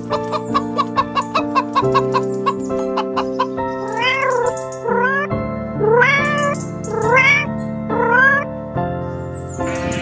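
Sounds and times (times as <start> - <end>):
background music with held notes: 0.0 - 10.0
cat meowing: 3.8 - 8.5.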